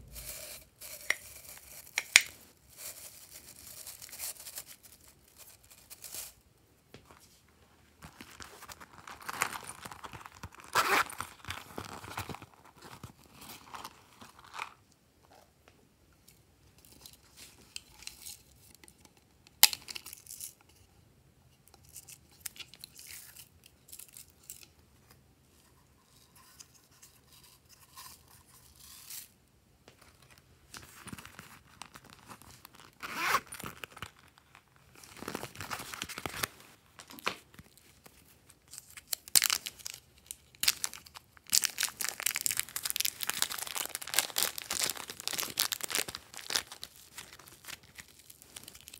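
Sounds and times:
zipper on plastic pouch: 0:33.0 - 0:33.7.

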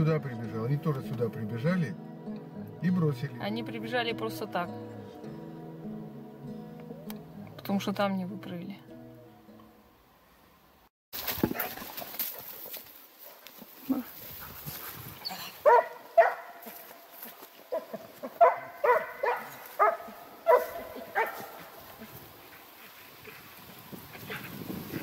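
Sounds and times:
hound baying: 0:15.2 - 0:23.4.

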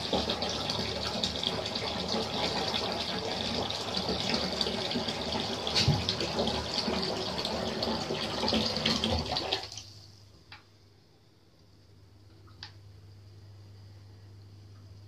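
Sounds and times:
tap water running into bath: 0:00.0 - 0:09.9.

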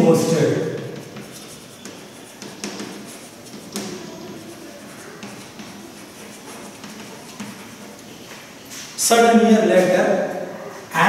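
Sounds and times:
chalk scratching on chalkboard: 0:00.1 - 0:09.0
chalk taps: 0:00.2 - 0:09.0.

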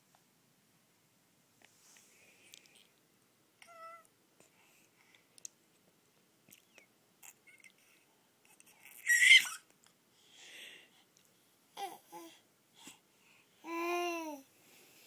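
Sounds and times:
baby cooing: 0:08.8 - 0:09.6, 0:11.8 - 0:12.4, 0:13.6 - 0:14.5
baby squealing excitedly: 0:08.9 - 0:09.6.

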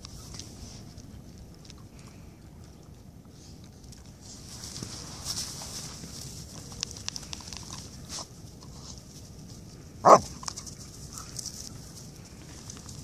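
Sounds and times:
paws ticking on snow: 0:03.4 - 0:13.0
dog barking: 0:10.0 - 0:10.3.

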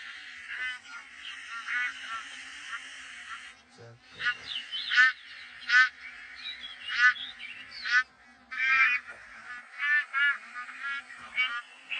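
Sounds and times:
geese honking in flight: 0:04.2 - 0:11.9.

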